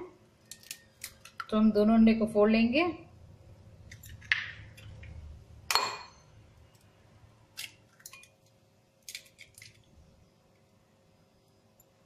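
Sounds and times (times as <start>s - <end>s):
eggshell crackling: 0.4s - 1.6s, 7.6s - 9.9s.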